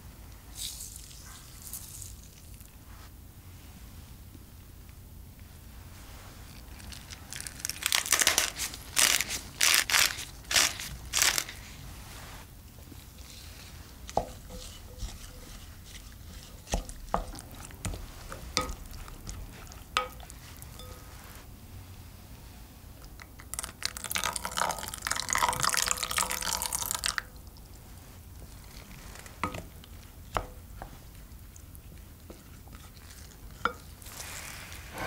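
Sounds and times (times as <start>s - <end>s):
pepper mill grinding: 7.0s - 11.7s
spoon stirring in glass bowl: 13.5s - 21.4s, 31.9s - 34.6s.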